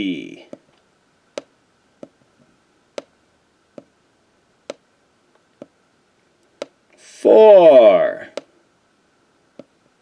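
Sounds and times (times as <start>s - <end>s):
marker clicking on whiteboard: 2.9s - 3.1s, 3.7s - 3.9s, 5.6s - 5.8s.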